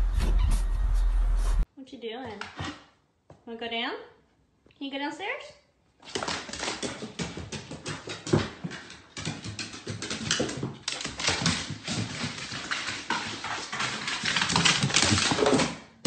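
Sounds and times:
dog paws clattering on stairs: 6.0s - 16.0s.

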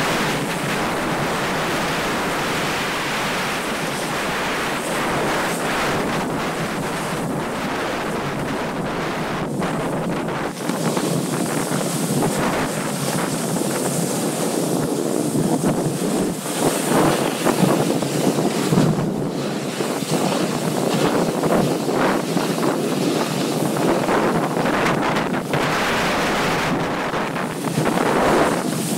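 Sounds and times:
sliding on hard snow: 0.0s - 28.9s
wind buffeting microphone: 0.0s - 28.9s.

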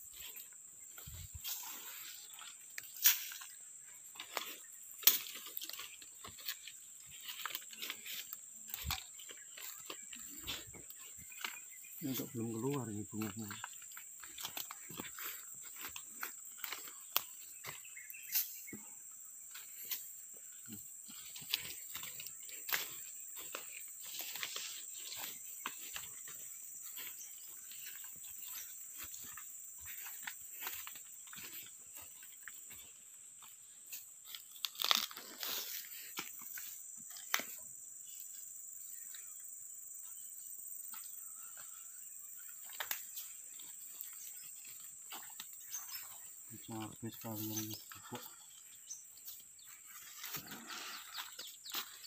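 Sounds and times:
footsteps crunching through twigs: 0.0s - 18.8s, 19.4s - 38.2s, 42.4s - 52.0s
high-pitched insect drone: 0.0s - 52.0s
twigs snapping: 5.0s - 6.6s, 34.3s - 35.5s.

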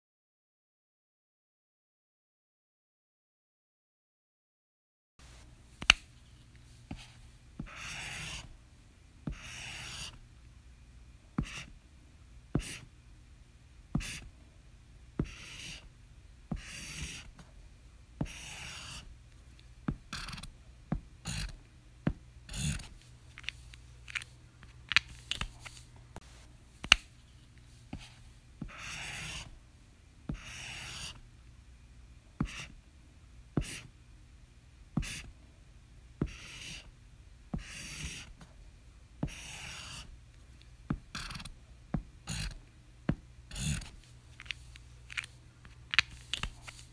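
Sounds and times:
highlighter strokes on paper: 6.3s - 8.6s, 9.3s - 10.2s, 11.4s - 11.8s, 12.6s - 12.9s, 14.0s - 14.3s, 15.2s - 15.9s, 16.5s - 17.5s, 18.2s - 19.1s, 22.5s - 23.6s, 25.1s - 29.6s, 30.3s - 31.2s, 32.4s - 32.8s, 33.6s - 33.9s, 35.0s - 35.3s, 36.2s - 36.9s, 37.6s - 38.5s, 39.2s - 40.1s, 40.9s - 42.6s, 43.5s - 45.3s, 46.0s - 46.9s.

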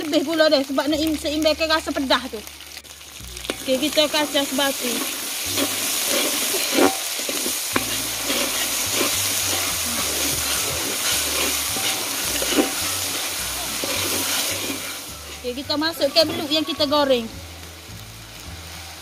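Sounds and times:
paste sizzling in oil: 0.0s - 19.0s
metal ladle scraping wok: 3.4s - 17.0s.

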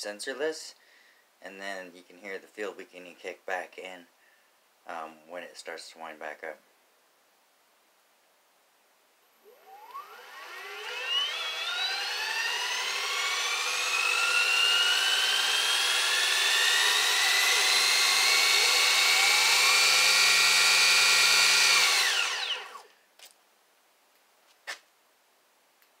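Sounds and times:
electric motor whine: 9.3s - 22.9s.

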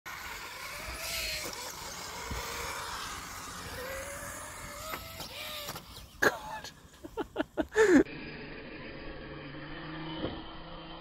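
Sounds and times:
electric motor whining: 0.1s - 6.2s, 8.1s - 11.0s.

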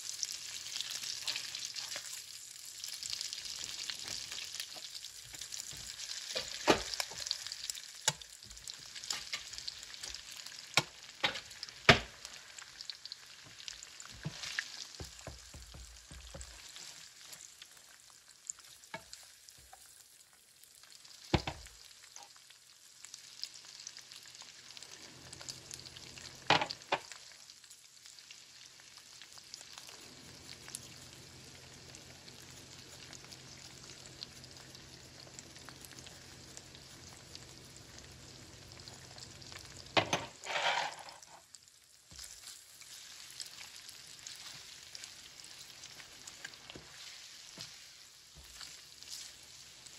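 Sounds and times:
food sizzling in a frying pan: 0.0s - 49.9s
utensil knocking against pan: 15.0s - 16.5s.

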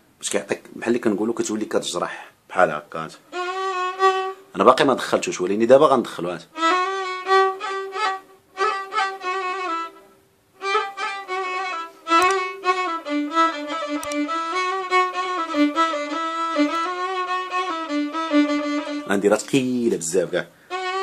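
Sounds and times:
violin melody: 3.1s - 21.0s.

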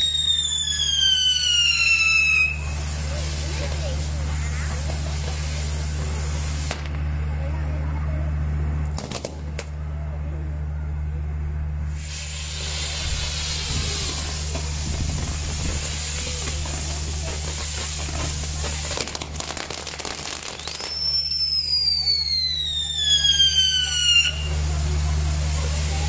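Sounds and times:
hissing spark fountains: 0.0s - 7.0s, 11.9s - 26.0s
whistling firework: 0.0s - 7.0s, 11.9s - 26.0s
crackling firework pops: 3.5s - 7.1s, 8.8s - 9.8s, 12.0s - 24.6s.

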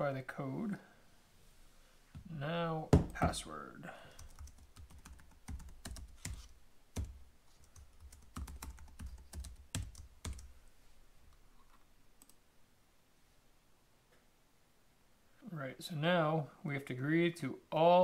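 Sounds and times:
computer keyboard typing: 4.2s - 10.5s.

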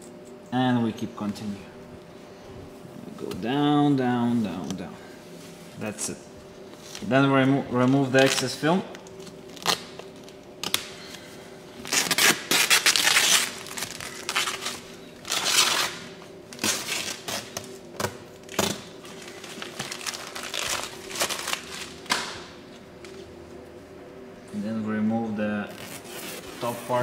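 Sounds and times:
faint steady hum: 0.0s - 27.0s
plastic film crinkling: 11.8s - 16.0s, 16.6s - 22.2s.

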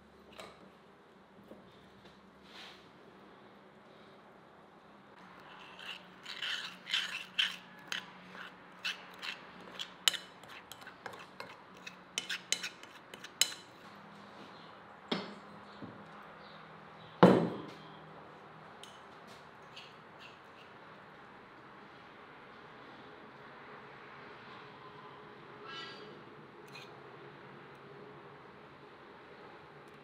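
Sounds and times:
metal spoon clinking on porcelain bowl: 5.6s - 13.7s.

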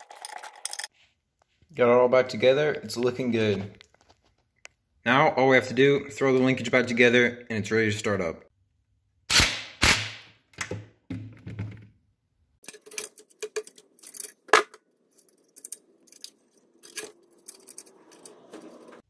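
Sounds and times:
small metal clicks and clinks: 15.1s - 18.4s.

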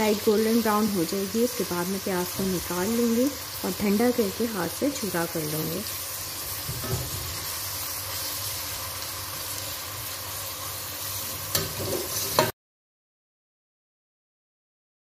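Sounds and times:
onions sizzling in oil: 0.0s - 12.6s.

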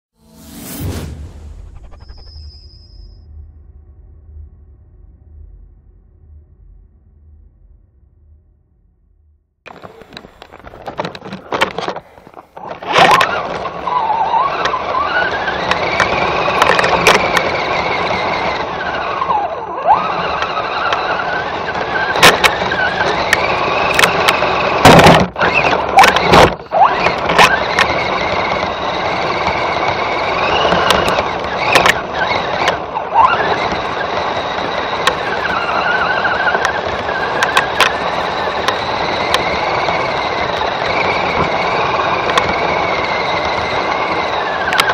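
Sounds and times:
sharp clicks and knocks: 9.7s - 13.8s, 15.6s - 17.6s, 22.1s - 32.8s, 36.5s - 42.7s
electric motor and gearbox whining: 9.7s - 44.9s.

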